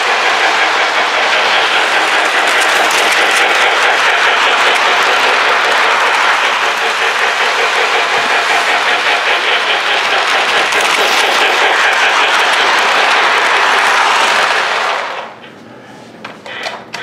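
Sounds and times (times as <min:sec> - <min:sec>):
model train wheels rolling: 0:00.0 - 0:15.4.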